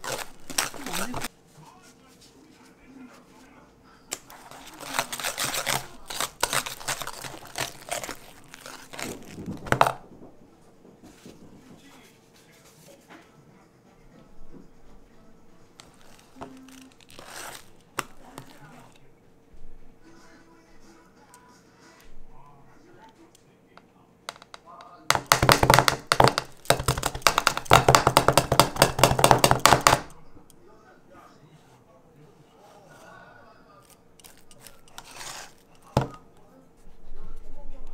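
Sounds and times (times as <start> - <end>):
whisk beating mashed potatoes: 4.2 - 8.9, 25.1 - 30.1, 34.2 - 36.2.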